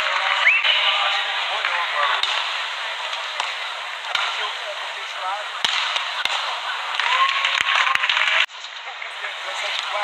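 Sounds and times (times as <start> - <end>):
arena crowd noise: 0.0 - 10.0.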